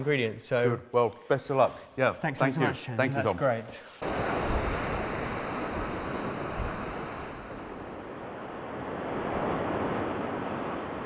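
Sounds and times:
sea surf washing: 4.0 - 11.0
wind blowing: 4.0 - 11.0.

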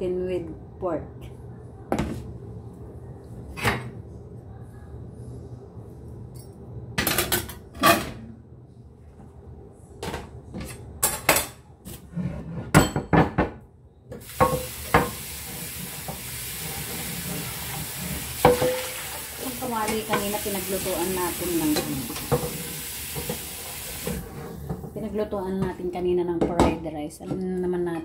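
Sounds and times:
kitchenware knocking and clinking: 12.7 - 13.6, 18.4 - 19.0
tap water running into a pan: 14.2 - 24.4.

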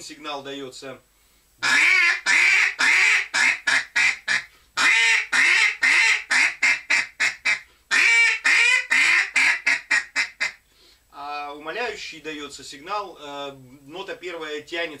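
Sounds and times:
duck call quacks: 1.6 - 10.6.

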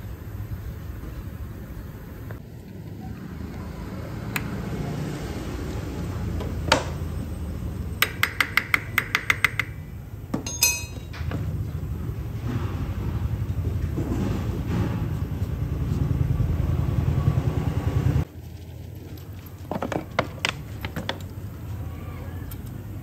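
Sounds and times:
metal tools clicking and clinking: 10.4 - 11.4.

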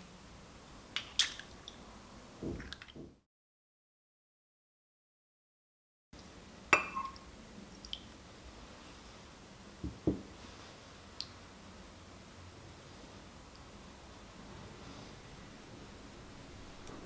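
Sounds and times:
glass clinking: 6.7 - 7.2.

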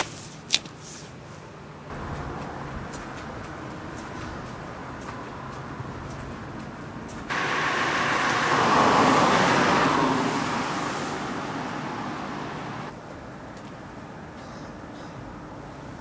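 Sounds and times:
car passing: 1.9 - 12.9.

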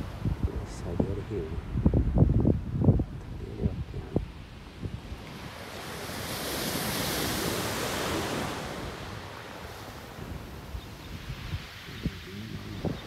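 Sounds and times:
wind rumble on microphone: 0.0 - 13.0
wave washing up pebble beach: 5.2 - 12.3.

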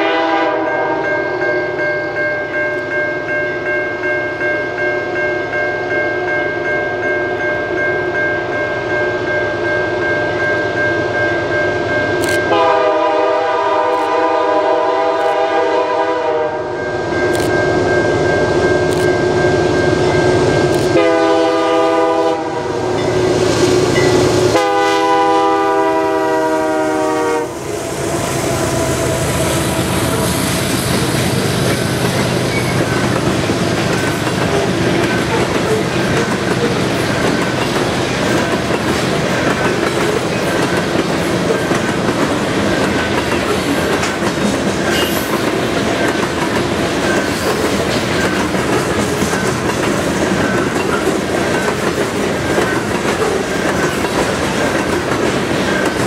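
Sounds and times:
locomotive air horn blasts: 0.0 - 1.0, 12.5 - 16.8, 20.9 - 22.9, 24.5 - 30.5
train wheels on rails: 11.4 - 56.0.

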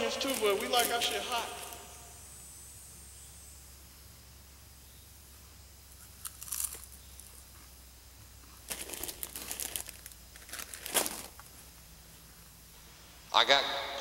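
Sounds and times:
plastic snack packaging crinkling: 0.0 - 1.8, 6.2 - 7.4, 8.6 - 11.5.

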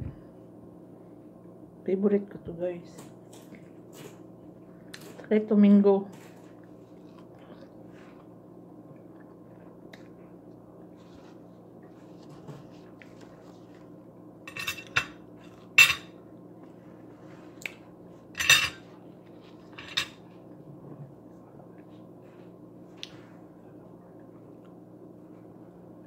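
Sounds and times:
steady low hum: 0.0 - 26.0
fork clinking against plate: 14.5 - 15.2.

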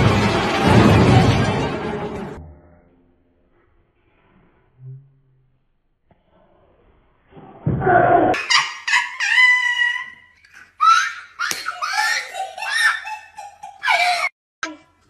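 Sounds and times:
person laughing hard: 8.4 - 14.3.

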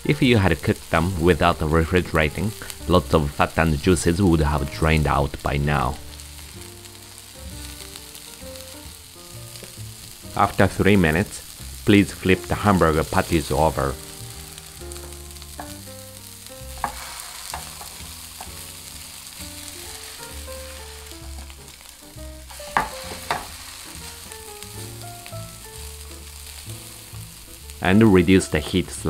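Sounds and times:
patties sizzling in a frying pan: 0.0 - 29.0.

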